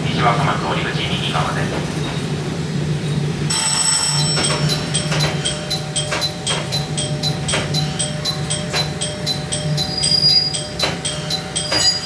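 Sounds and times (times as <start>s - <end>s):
diesel railcar humming: 0.0s - 12.0s
rapid electronic bell ringing: 3.5s - 12.0s.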